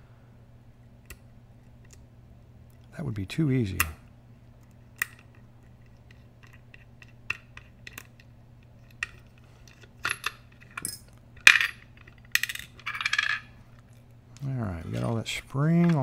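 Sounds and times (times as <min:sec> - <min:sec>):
small metal parts clinking: 0:08.8 - 0:13.5.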